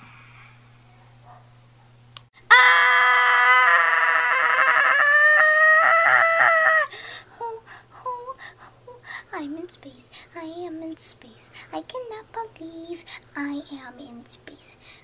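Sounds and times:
child screaming: 2.5 - 6.9.

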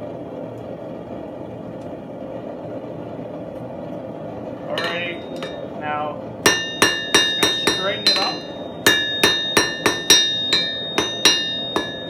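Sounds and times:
hammer striking steel on anvil: 4.7 - 5.7, 6.4 - 12.0.

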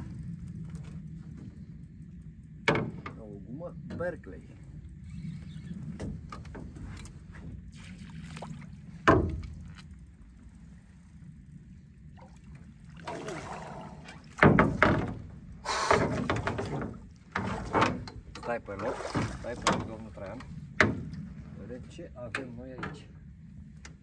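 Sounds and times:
water splashing: 7.7 - 10.0, 12.0 - 21.1.

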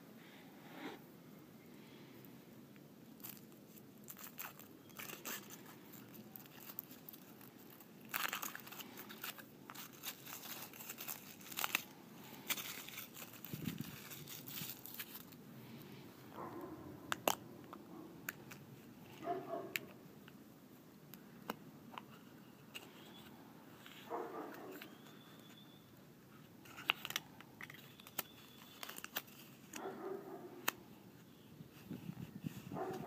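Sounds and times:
foil wrapper crinkling and tearing: 3.2 - 15.4, 26.6 - 29.8.

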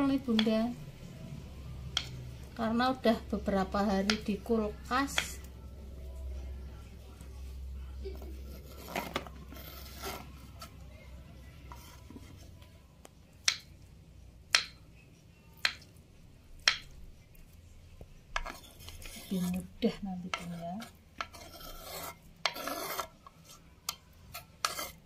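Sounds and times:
scraping and handling sounds: 8.2 - 10.9, 18.3 - 25.0.

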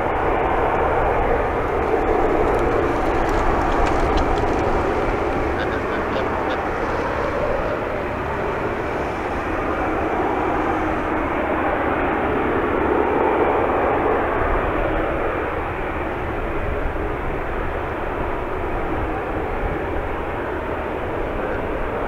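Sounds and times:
jet engines hiss and rumble: 0.0 - 22.0.

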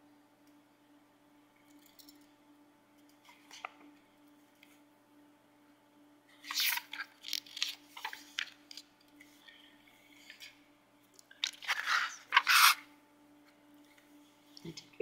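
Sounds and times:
faint steady hum: 0.0 - 15.0
paper pages rustling: 6.4 - 8.8, 11.4 - 12.8.

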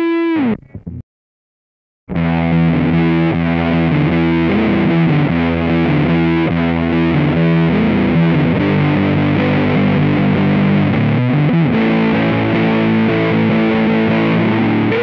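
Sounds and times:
fuzz electric guitar riff: 0.0 - 1.0, 2.1 - 15.0.

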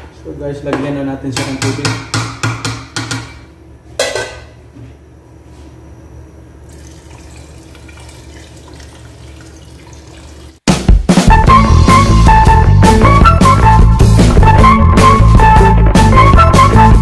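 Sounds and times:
water pouring into a pot: 6.6 - 10.6.

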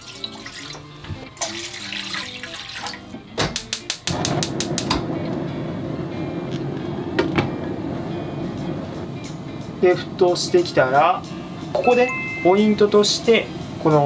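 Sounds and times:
gas igniter clicking: 3.4 - 5.4
gas flame rushing: 4.0 - 11.8.

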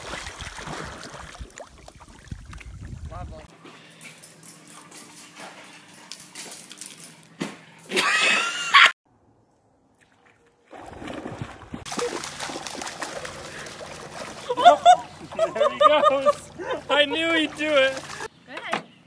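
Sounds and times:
water sloshing and splashing: 0.0 - 3.2, 9.9 - 18.3.

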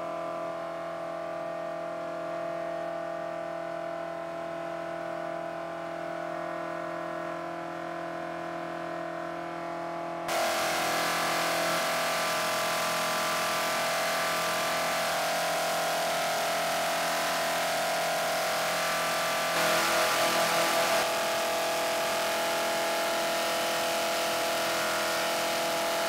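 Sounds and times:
racing engine running steadily: 8.0 - 26.0.

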